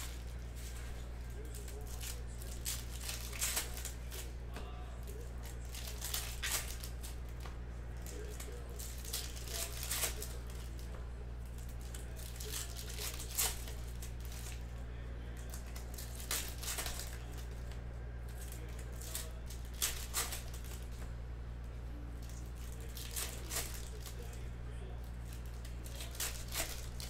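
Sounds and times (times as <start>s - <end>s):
foil packs tearing and crinkling: 0.0s - 4.3s, 5.1s - 7.2s, 8.0s - 10.8s, 11.8s - 14.6s, 15.4s - 17.6s, 18.3s - 21.0s, 22.3s - 24.4s, 25.2s - 27.0s
cards rustling and clicking: 0.0s - 21.1s, 22.2s - 27.0s
steady low hum: 0.0s - 27.0s.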